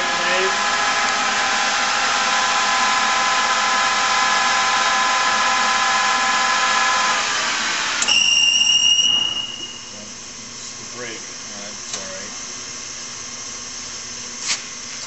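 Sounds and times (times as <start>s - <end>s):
lathe gear whine: 0.0s - 13.5s
high-pitched brake squeal: 8.1s - 10.0s.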